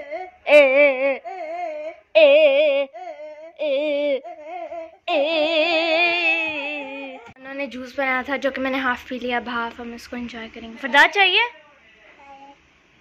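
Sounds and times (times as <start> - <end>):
high voice singing: 0.3 - 7.3.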